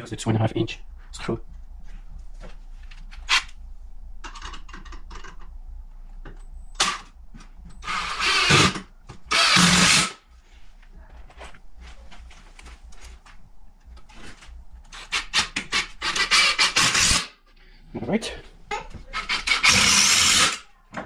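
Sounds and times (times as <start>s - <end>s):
power drill driving screws: 7.8s - 10.2s, 16.0s - 17.3s, 19.2s - 20.6s.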